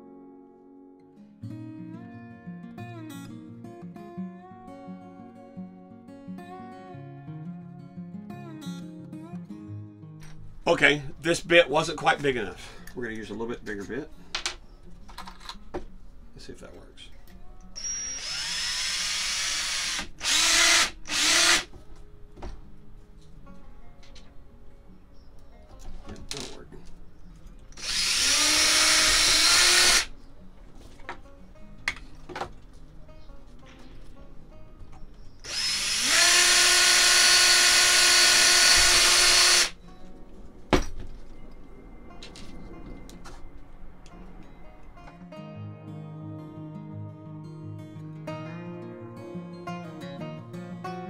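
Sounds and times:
cordless drill motor whine: 0:17.8 - 0:21.7, 0:27.8 - 0:30.1, 0:35.5 - 0:39.8
drilling bursts: 0:17.8 - 0:21.7, 0:27.8 - 0:30.1, 0:35.4 - 0:39.8.

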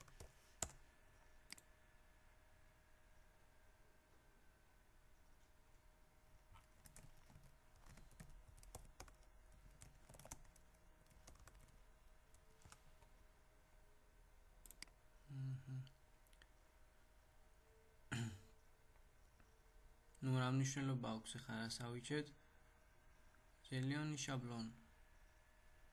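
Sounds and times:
keyboard typing: 0:00.0 - 0:00.8, 0:06.6 - 0:12.8
low hum-like sounds: 0:00.0 - 0:25.9.

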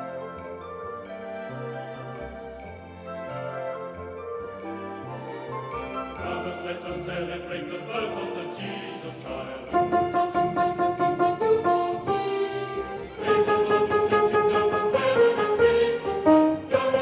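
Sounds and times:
piano accompaniment: 0:00.0 - 0:17.0
men singing in unison: 0:06.2 - 0:10.1
women singing: 0:11.7 - 0:17.0.

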